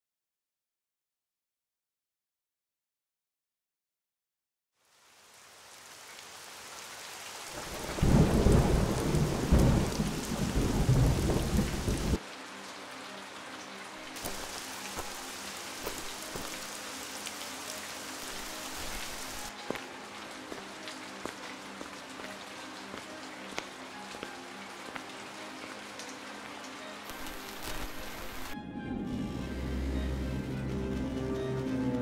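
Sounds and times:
rain: 4.8 - 32.0
water dripping: 5.9 - 28.6
low thunder rumble: 7.9 - 12.2.

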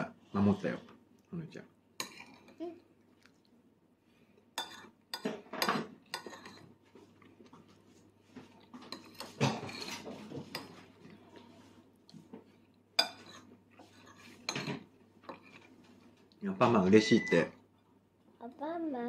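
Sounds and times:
cutlery clinking on plates: 4.6 - 6.7, 8.8 - 10.9, 13.0 - 15.7
utensils scraping plates: 8.9 - 10.9.

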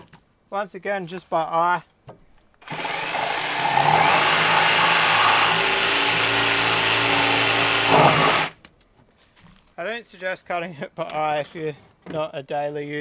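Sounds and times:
power saw cutting wood: 2.6 - 8.6.

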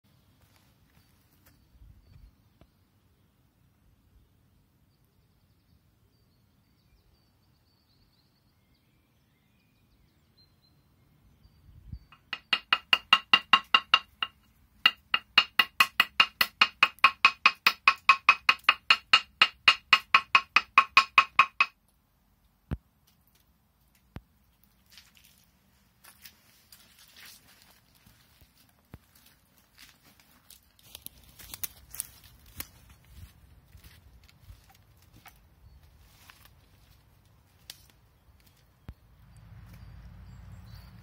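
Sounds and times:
stone striking stone slab: 12.2 - 21.8.

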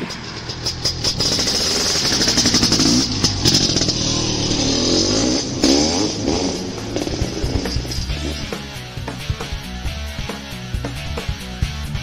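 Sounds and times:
engine revving: 0.0 - 9.5.

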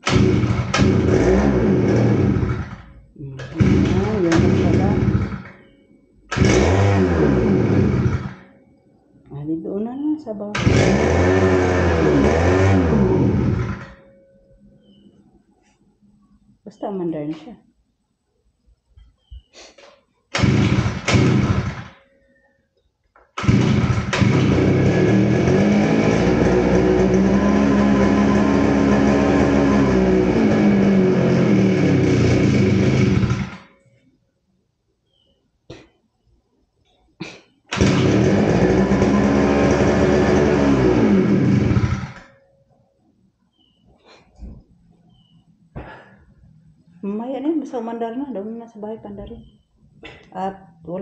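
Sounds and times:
brush cutter engine running: 0.0 - 2.8, 3.4 - 5.6, 6.3 - 8.4, 10.5 - 13.9, 20.4 - 22.0, 23.4 - 33.7, 37.7 - 42.2.

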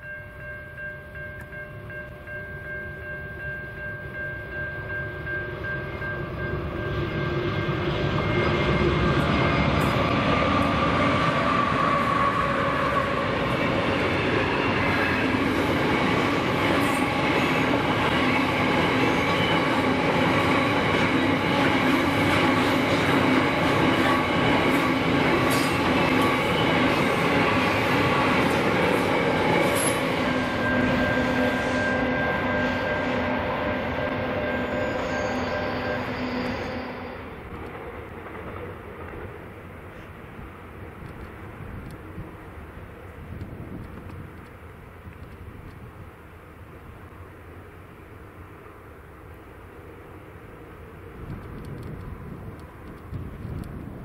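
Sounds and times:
train wheels rumbling on rails: 0.0 - 47.2, 50.6 - 54.0
diesel locomotives passing: 0.0 - 54.0
faint wheel squeal: 34.4 - 37.2.

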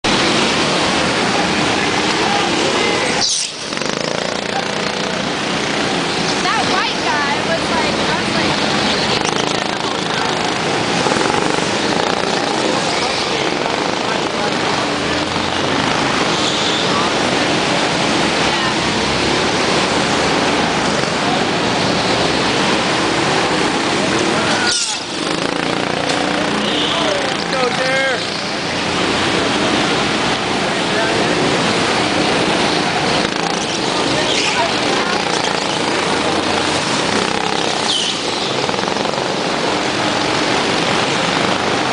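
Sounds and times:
go-kart engines running: 0.0 - 41.9
high squeal: 24.6 - 25.1.

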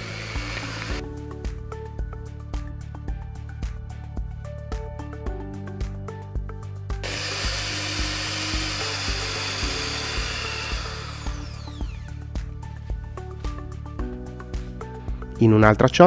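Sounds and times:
electric hand mixer whirring: 0.0 - 1.0, 7.0 - 12.2
background music with steady beat: 0.0 - 16.0.

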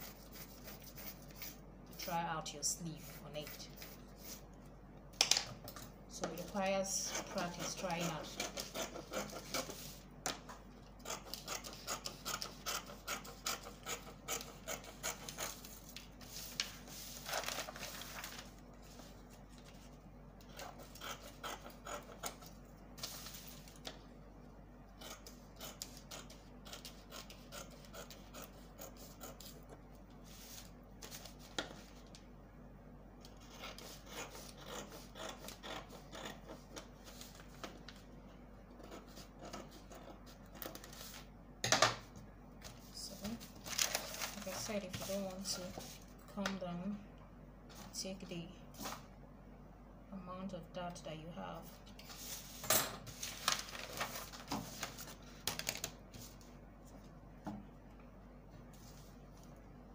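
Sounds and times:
rubbing and scratching on paper: 0.0 - 4.5, 6.2 - 10.1, 11.0 - 23.9, 25.0 - 32.2, 33.3 - 38.1, 38.7 - 41.3, 42.6 - 46.2, 52.0 - 56.5.

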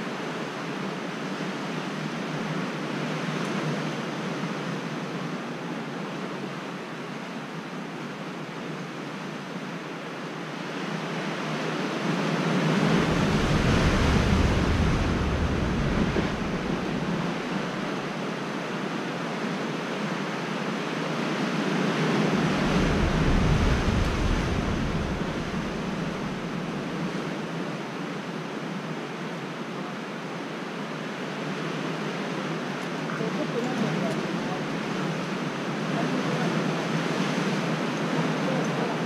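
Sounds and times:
wind rumbling on microphone: 9.6 - 29.2
surf surging against rocks: 9.8 - 39.0.

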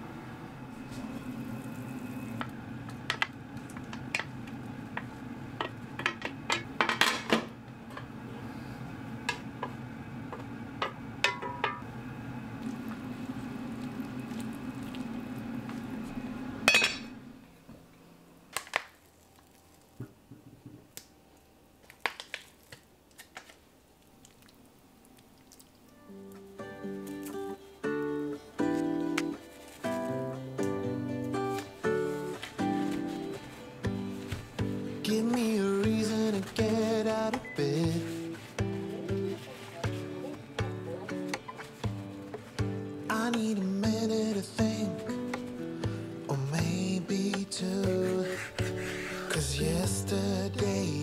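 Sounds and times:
induction hob hum: 0.0 - 18.5
knocks and clinks against pot: 10.8 - 11.8, 16.7 - 17.1.

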